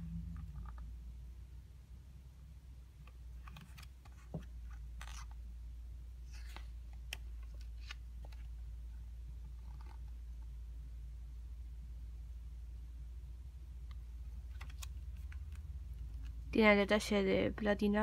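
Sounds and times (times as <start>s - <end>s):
low steady hum: 0.0s - 18.0s
pages rustling: 3.3s - 5.4s, 6.2s - 8.6s, 9.5s - 10.2s, 14.4s - 16.4s.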